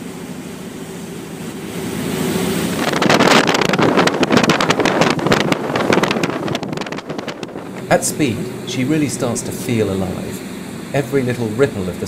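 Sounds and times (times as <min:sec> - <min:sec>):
boat engines humming: 0:00.0 - 0:12.0
rushing water: 0:00.0 - 0:12.0
wind buffeting microphone: 0:02.7 - 0:10.4.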